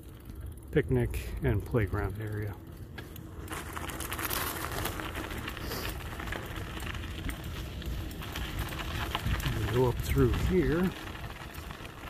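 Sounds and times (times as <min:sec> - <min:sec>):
tyres crunching on gravel: 0:00.2 - 0:12.0
wind rumbling on microphone: 0:03.5 - 0:12.0.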